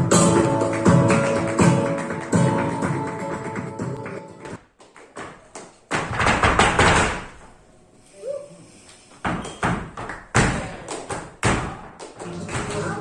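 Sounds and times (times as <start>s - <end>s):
hard foot stamps: 4.9s - 7.6s, 9.1s - 12.0s.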